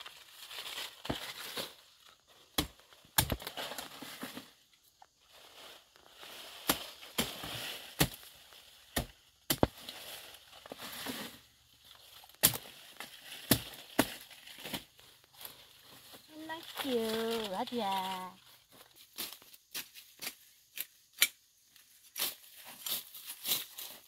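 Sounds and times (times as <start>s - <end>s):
leaves and stalks rustling: 0.0s - 24.0s
blade chopping plant stems: 2.4s - 4.3s, 6.5s - 10.0s, 12.3s - 15.5s.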